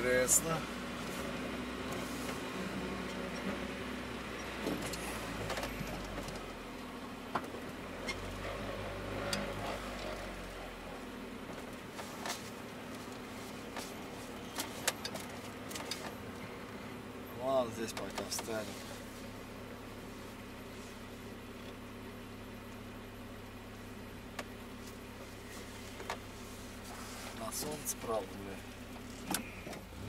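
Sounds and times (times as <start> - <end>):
truck engine hum: 0.0 - 30.0.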